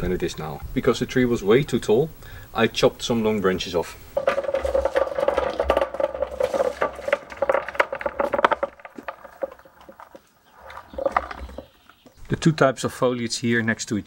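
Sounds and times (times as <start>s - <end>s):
casters rolling over concrete: 3.8s - 12.3s.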